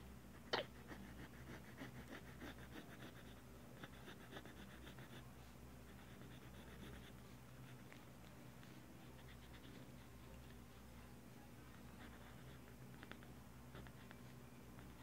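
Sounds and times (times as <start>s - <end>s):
low steady hum: 0.0s - 15.0s
pen scratching on paper: 5.9s - 7.2s.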